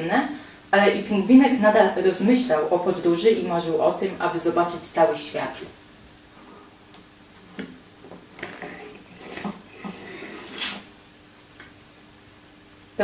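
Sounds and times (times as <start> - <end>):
card sliding with paper swish: 10.2 - 10.9.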